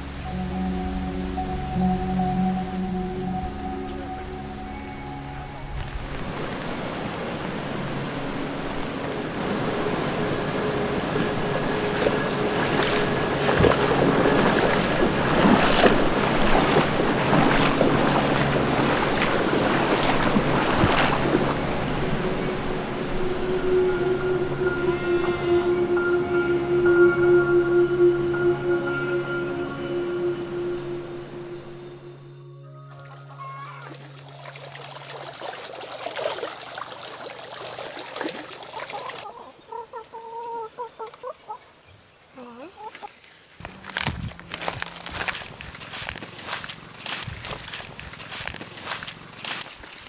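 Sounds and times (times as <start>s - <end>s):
low musical drone: 0.0s - 36.5s, 43.6s - 49.6s
stream rushing over rocks: 3.6s - 24.0s, 33.9s - 39.3s
splashes of wading through water: 5.8s - 23.2s, 32.9s - 50.0s
hen clucking: 38.8s - 41.6s.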